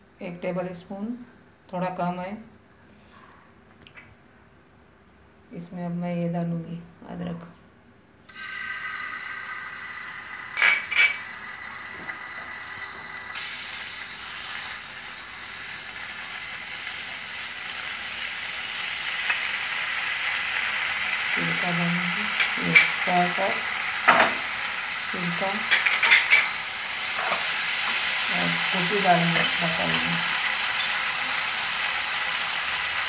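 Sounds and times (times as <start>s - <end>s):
sauce sizzling in frying pan: 8.3s - 33.0s
spatula scraping pan: 25.6s - 28.0s.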